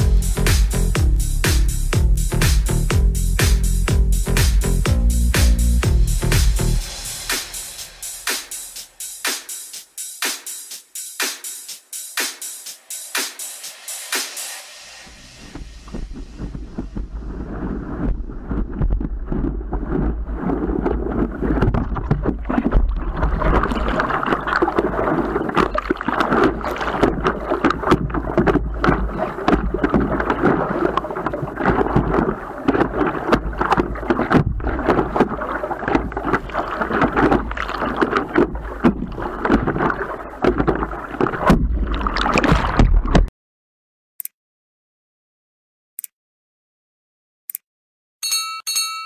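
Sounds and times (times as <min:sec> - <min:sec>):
wind rumbling on microphone: 0:15.1 - 0:42.1
water splashing against a paddleboard: 0:15.5 - 0:43.3.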